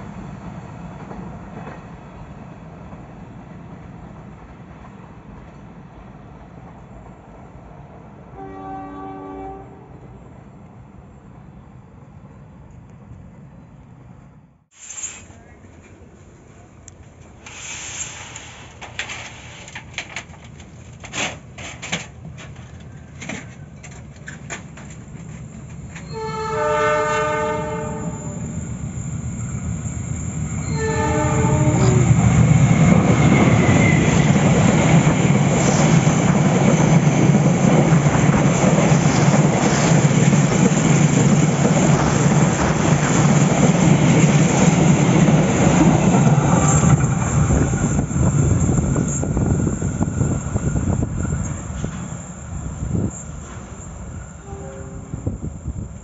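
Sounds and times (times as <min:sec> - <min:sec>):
locomotive horn: 0:08.4 - 0:10.1, 0:26.0 - 0:28.4, 0:30.6 - 0:32.1, 0:54.4 - 0:55.4
train wheels rolling over rails: 0:14.7 - 0:54.5.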